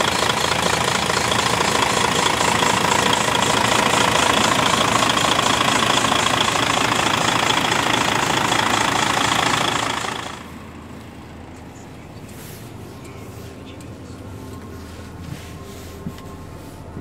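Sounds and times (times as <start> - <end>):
diesel engine idling: 0.0 - 17.0
high whine: 0.0 - 17.0
quiet low hum: 10.5 - 17.0.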